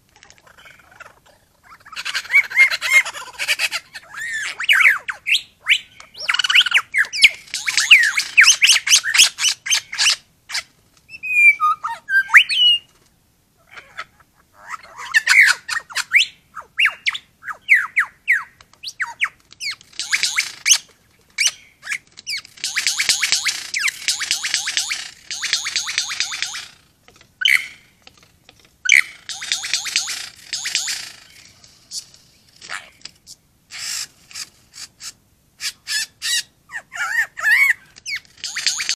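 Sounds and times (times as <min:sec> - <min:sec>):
bird harsh rasping calls: 0:00.4 - 0:12.9, 0:13.6 - 0:28.0, 0:28.8 - 0:33.1, 0:33.7 - 0:38.9
lyrebird singing whistled notes: 0:04.1 - 0:10.2, 0:11.1 - 0:12.9, 0:14.7 - 0:26.8, 0:28.9 - 0:31.4, 0:35.9 - 0:38.9
bird swooping whistled phrases: 0:11.2 - 0:12.9, 0:15.2 - 0:20.8.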